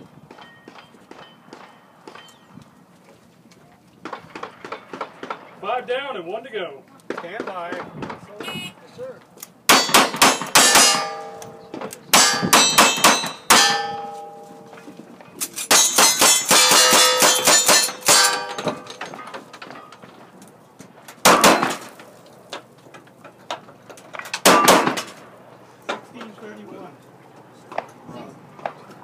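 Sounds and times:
gunshots: 0:09.7 - 0:11.4, 0:21.2 - 0:22.0, 0:24.4 - 0:25.2
steel target ringing clang: 0:09.7 - 0:15.0, 0:15.7 - 0:19.4
heavy gun blasts: 0:21.2 - 0:21.9.

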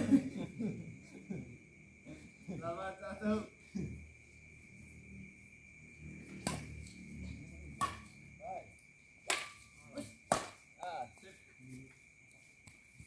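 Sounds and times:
rackets striking shuttlecock: 0:06.3 - 0:06.9, 0:07.7 - 0:08.2, 0:09.2 - 0:10.7.

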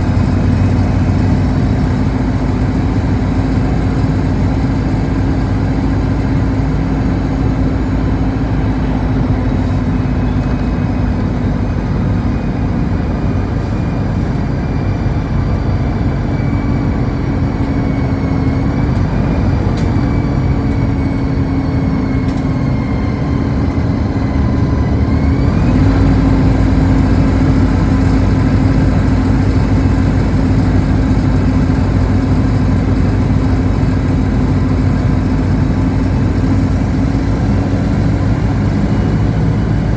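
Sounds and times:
bus engine and tyre drone: 0:00.0 - 0:39.9.

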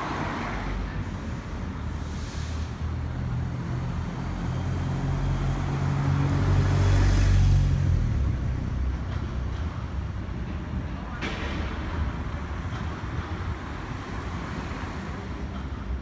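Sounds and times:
vehicle rumbling past: 0:01.5 - 0:10.7.

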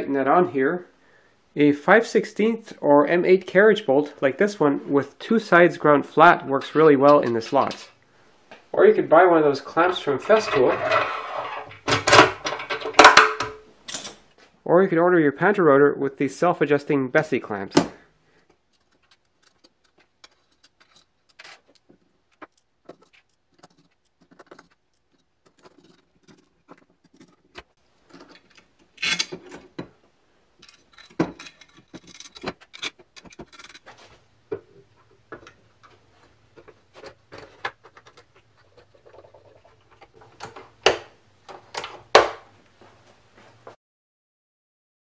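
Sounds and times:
small metal parts clicking and rattling: 0:18.7 - 0:29.6, 0:30.6 - 0:33.9.

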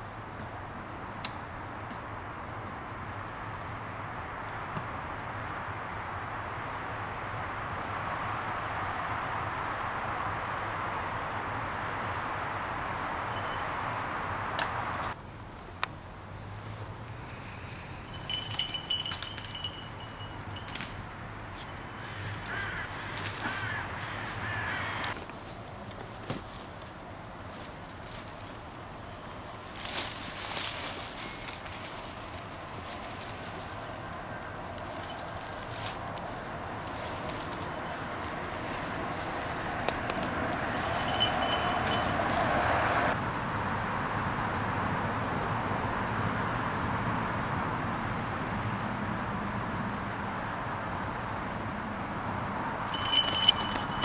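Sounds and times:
outdoor background hiss: 0:00.0 - 0:54.0
high rattling jingle: 0:13.3 - 0:13.7, 0:18.1 - 0:21.0, 0:21.6 - 0:22.8, 0:40.6 - 0:42.5, 0:52.8 - 0:54.0
high tinkling: 0:13.3 - 0:13.8, 0:18.0 - 0:22.6, 0:40.6 - 0:42.5, 0:52.8 - 0:54.0
rustling in dry leaf litter: 0:21.6 - 0:42.5
crows cawing: 0:21.8 - 0:25.2.

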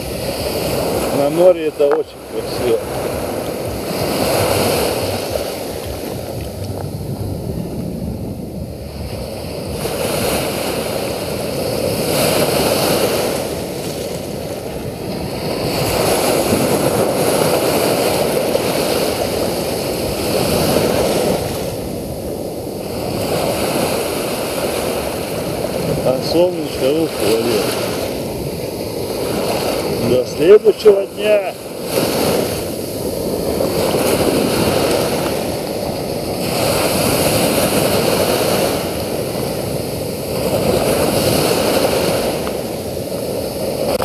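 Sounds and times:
waves washing over sand and pebbles: 0:00.0 - 0:44.0.

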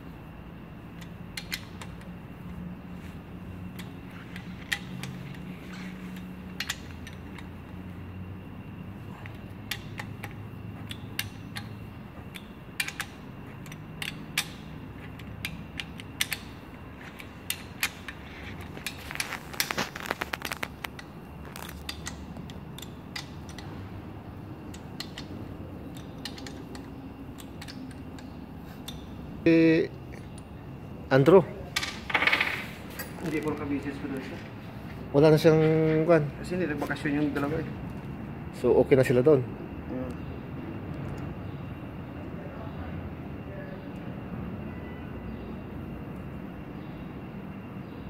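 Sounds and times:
steady low hum: 0:00.0 - 0:48.0
socket wrench clicking: 0:01.0 - 0:02.2, 0:03.6 - 0:07.8, 0:09.2 - 0:29.2.

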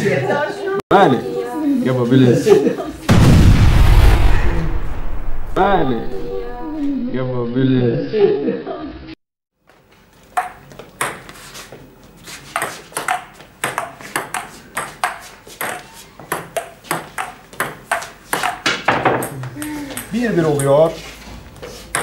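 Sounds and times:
table tennis ball hits: 0:12.6 - 0:20.1.

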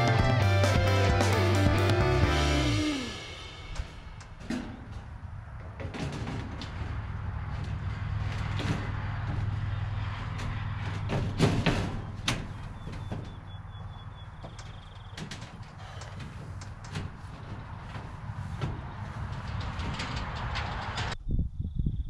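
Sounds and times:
metal panel knocking and clattering: 0:03.8 - 0:21.2.

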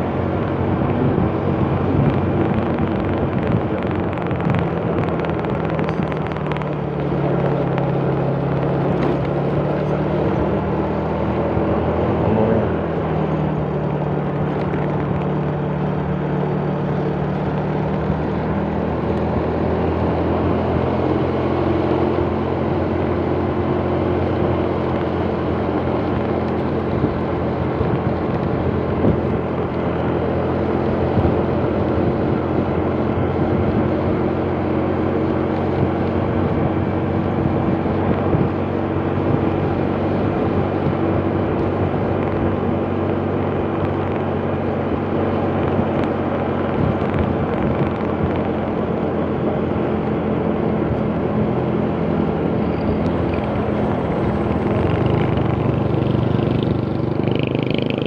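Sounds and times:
road noise: 0:00.0 - 0:58.0
wind noise: 0:00.0 - 0:58.0
motor scooter engine running: 0:52.5 - 0:58.0.

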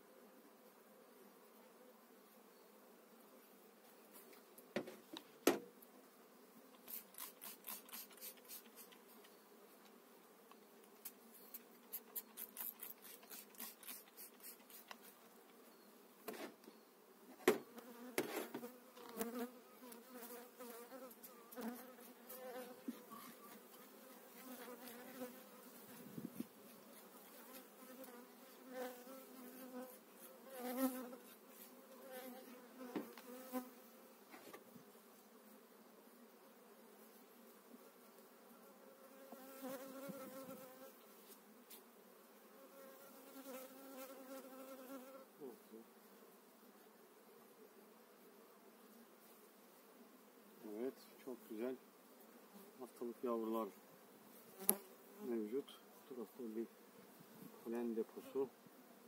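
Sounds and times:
bees buzzing: 0:04.7 - 0:34.3, 0:42.2 - 0:45.3
metal hive tool clicking and scraping: 0:11.0 - 0:15.2.

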